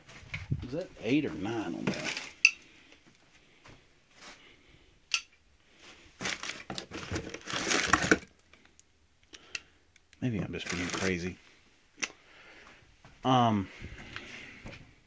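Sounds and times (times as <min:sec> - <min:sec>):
paper crinkling and rustling: 0:01.8 - 0:02.4, 0:06.2 - 0:08.3, 0:10.4 - 0:11.4.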